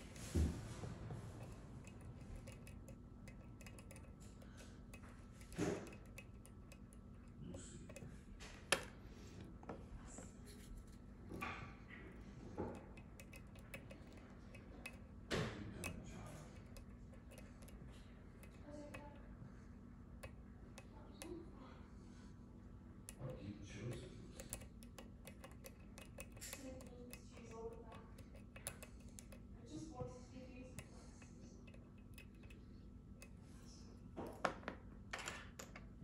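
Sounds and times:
lock pick ticks and scrapes: 0:01.4 - 0:08.9, 0:12.6 - 0:19.2, 0:23.9 - 0:29.5, 0:31.7 - 0:32.6.

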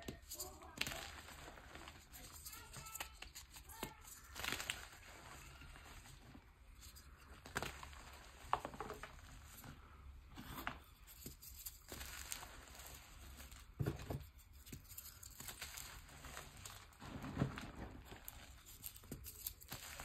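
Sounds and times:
hands crushing chalk blocks: 0:00.0 - 0:06.1, 0:10.5 - 0:17.0, 0:18.1 - 0:20.0.

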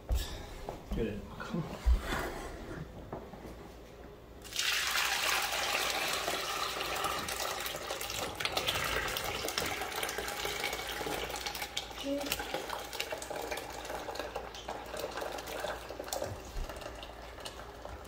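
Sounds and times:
buttermilk pouring into a bowl: 0:04.4 - 0:18.0.

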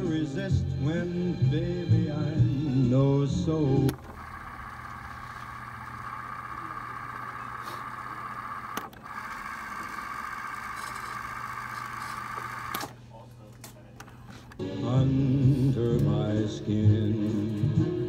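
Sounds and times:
cassette tape whirring: 0:03.2 - 0:13.0
cassette deck click: 0:03.8 - 0:04.2.

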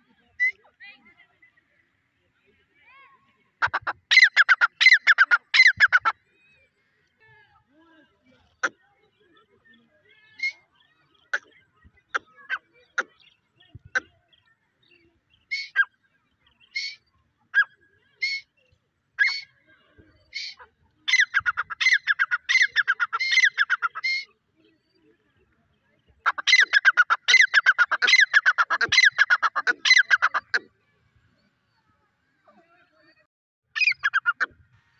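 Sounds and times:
bird calling shrill notes: 0:03.6 - 0:06.2, 0:15.4 - 0:16.0, 0:19.2 - 0:19.5, 0:20.3 - 0:24.3, 0:26.3 - 0:30.6, 0:33.8 - 0:34.5.

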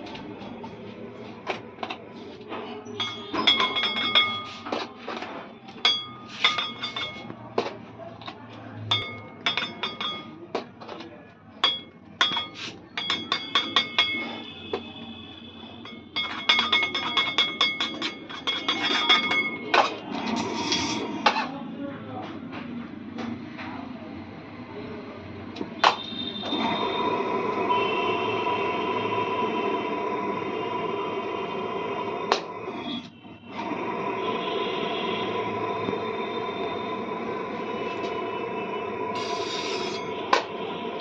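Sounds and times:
metal tools scraping cake turntable: 0:16.2 - 0:21.6, 0:39.2 - 0:40.1.

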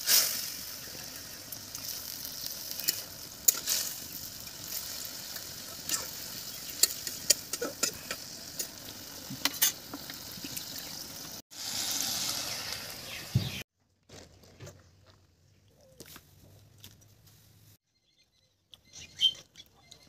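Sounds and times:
curry sizzling in a pan: 0:00.0 - 0:13.6.

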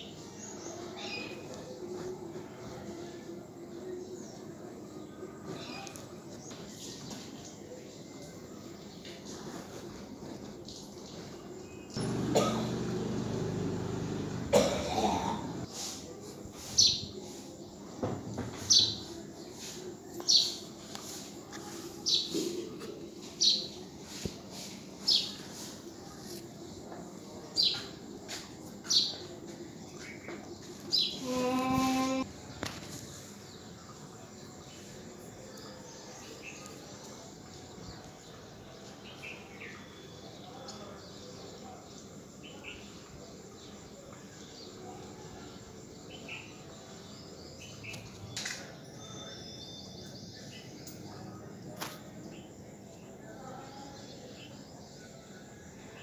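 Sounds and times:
sharp cough-like sound: 0:12.2 - 0:12.8, 0:14.5 - 0:15.6.

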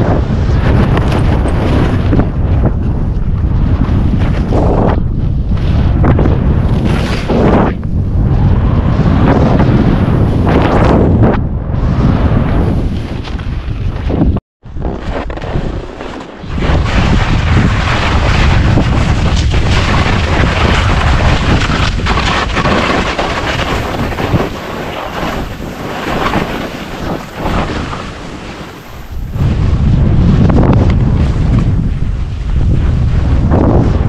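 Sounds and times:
wind buffeting microphone: 0:00.0 - 0:34.0
skis carving through snow: 0:06.6 - 0:07.7, 0:14.8 - 0:34.0.

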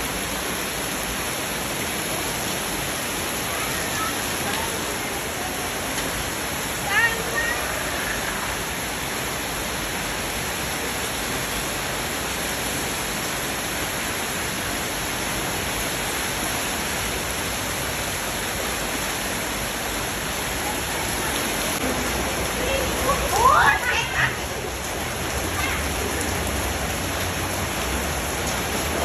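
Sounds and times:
heavy rain on pavement: 0:00.0 - 0:29.0.

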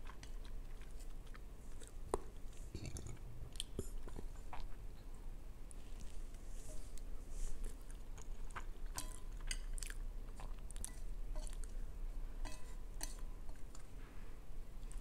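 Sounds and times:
person chewing noodles: 0:00.0 - 0:04.8, 0:07.0 - 0:11.8.

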